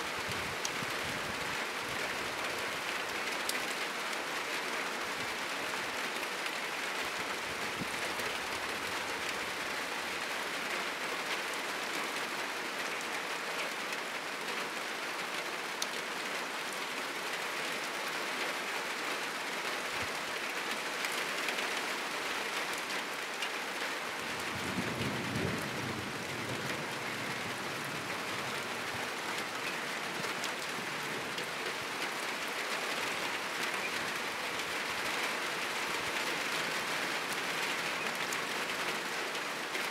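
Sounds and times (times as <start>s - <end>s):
heavy rain on a roof: 0.0s - 39.9s
low rumble of thunder: 24.4s - 28.1s.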